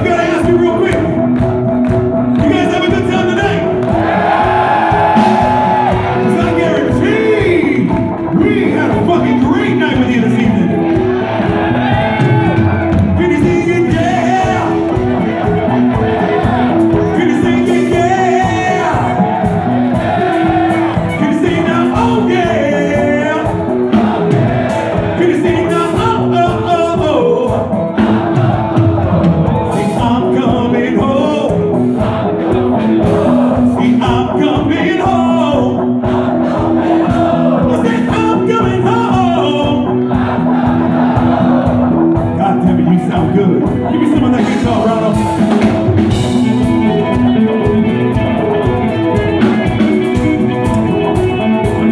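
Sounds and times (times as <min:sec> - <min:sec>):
man singing: 0:00.0 - 0:01.3, 0:05.0 - 0:11.2, 0:12.0 - 0:19.4, 0:20.8 - 0:40.2, 0:42.2 - 0:46.8
live rock band playing: 0:00.0 - 0:51.9.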